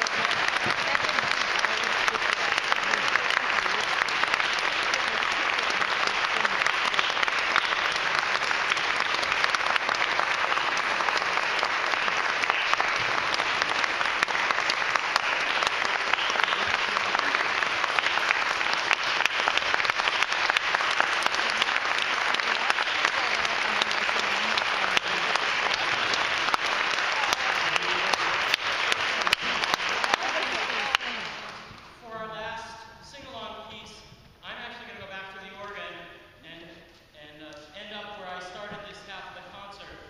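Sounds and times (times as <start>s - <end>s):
audience applauding: 0.0s - 32.0s.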